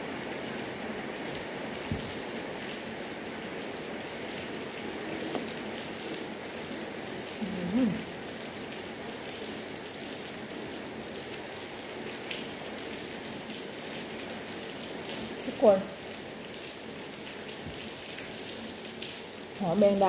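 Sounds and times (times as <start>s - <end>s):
person humming while chewing: 7.4s - 8.1s.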